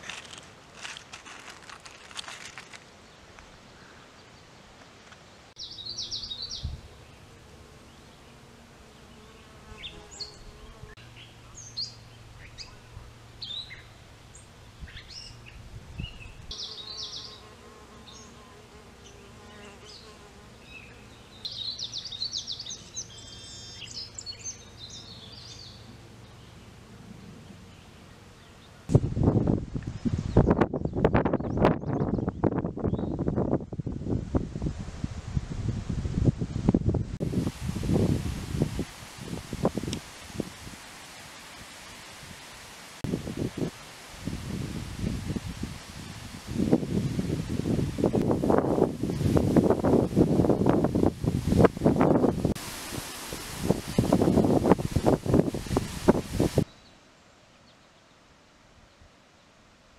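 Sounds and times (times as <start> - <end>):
bees buzzing: 5.9 - 11.0, 16.5 - 22.0
bird chirps: 20.8 - 26.5.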